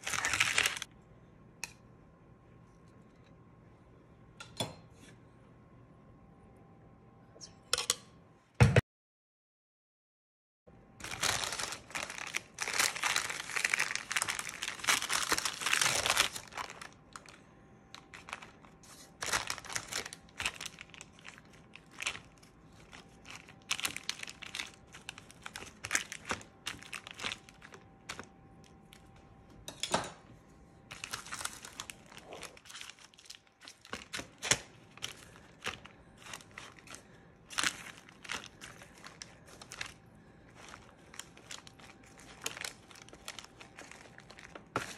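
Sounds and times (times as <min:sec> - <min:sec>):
parchment paper crinkling: 0:00.0 - 0:00.9, 0:11.0 - 0:29.1, 0:30.9 - 0:44.9.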